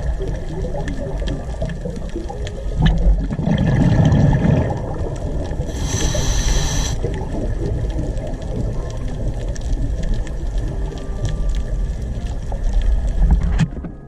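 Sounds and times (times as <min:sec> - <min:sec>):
low rumble of water: 0:00.0 - 0:14.0
underwater breath bubbling: 0:02.8 - 0:07.6
regulator hiss: 0:05.6 - 0:07.1.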